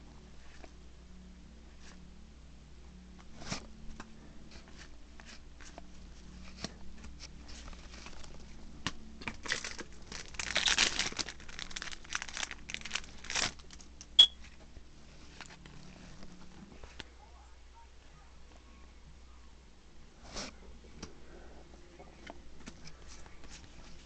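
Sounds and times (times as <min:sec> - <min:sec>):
wrapper crinkling and tearing: 0:07.5 - 0:08.6, 0:09.2 - 0:13.9.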